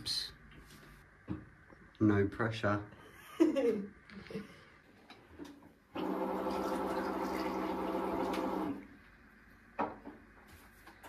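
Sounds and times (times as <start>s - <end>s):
water running: 6.0s - 8.9s.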